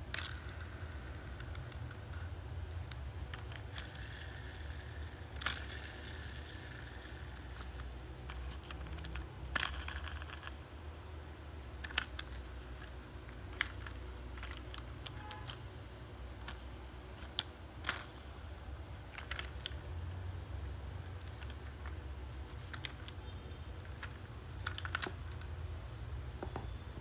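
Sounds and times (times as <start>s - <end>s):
low steady hum: 0.0s - 27.0s
plastic toy parts clicking: 0.1s - 10.6s, 11.7s - 15.6s, 16.4s - 16.6s, 17.2s - 18.2s, 19.0s - 19.9s, 21.2s - 23.2s, 23.8s - 25.5s.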